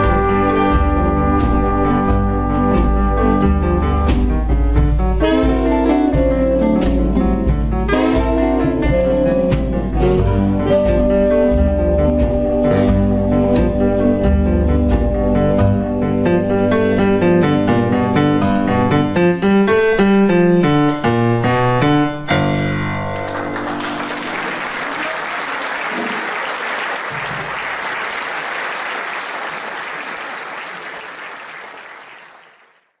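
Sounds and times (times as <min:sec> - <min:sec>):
boogie-woogie big band with piano: 0:00.0 - 0:24.9
audience applause: 0:23.2 - 0:33.0.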